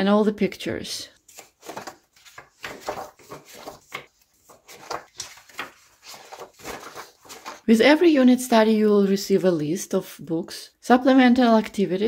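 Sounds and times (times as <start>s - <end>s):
binder pages turning: 1.2s - 7.8s.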